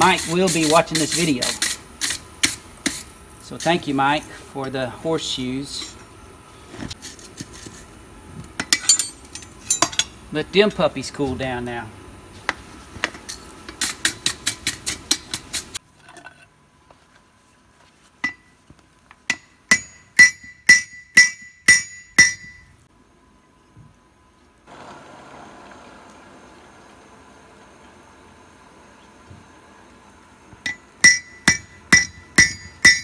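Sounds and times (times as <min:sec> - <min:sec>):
hammer striking steel on anvil: 0:18.2 - 0:18.5, 0:19.3 - 0:22.7, 0:30.6 - 0:33.0.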